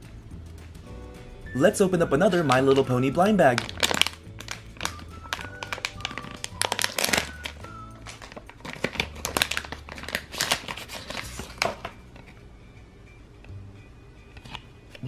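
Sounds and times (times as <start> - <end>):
quiet background music: 0.0 - 15.0
foil bag crinkling: 2.0 - 12.3.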